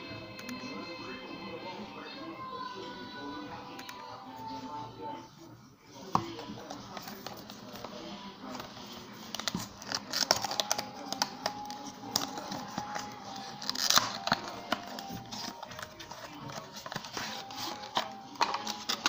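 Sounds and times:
cardboard box rustling: 0:08.5 - 0:19.0
plastic packet crinkling: 0:09.2 - 0:19.0.

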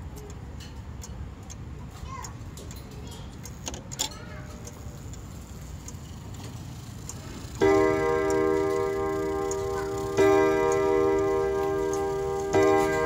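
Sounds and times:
pendulum ticking: 0:01.0 - 0:13.0
clock striking gong chord: 0:07.6 - 0:13.0.

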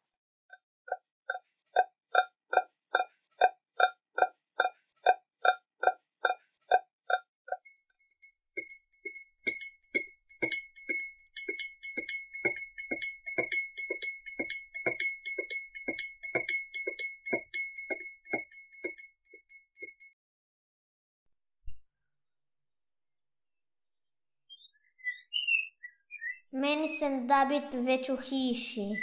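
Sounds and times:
steady high ringing tone: 0:08.2 - 0:20.1
bell-like clinking tune: 0:08.6 - 0:20.1.

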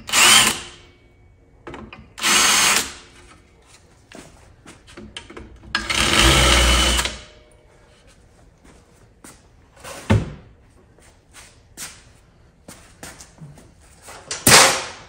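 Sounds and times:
cordless drill running: 0:00.0 - 0:00.6, 0:02.2 - 0:03.0, 0:05.8 - 0:07.2.

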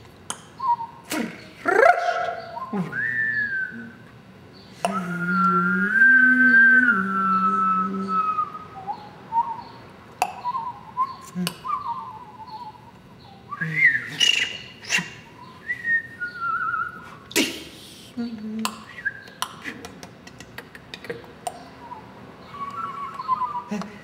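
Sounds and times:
man whistling: 0:02.0 - 0:04.0, 0:04.9 - 0:09.7, 0:10.4 - 0:12.8, 0:13.5 - 0:17.2, 0:21.8 - 0:23.8
mouth clicks: 0:04.7 - 0:08.6, 0:10.1 - 0:12.6, 0:13.5 - 0:15.3, 0:16.3 - 0:22.0.

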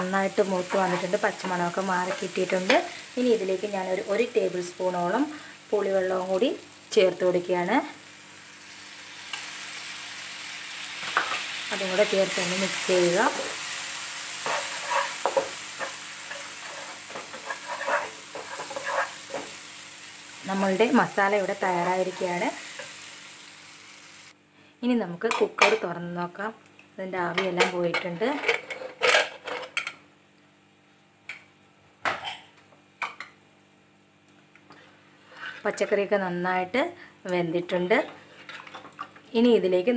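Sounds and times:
paste sizzling in hot oil: 0:08.2 - 0:24.4
spatula scraping frying pan: 0:14.2 - 0:19.6, 0:21.7 - 0:23.0.

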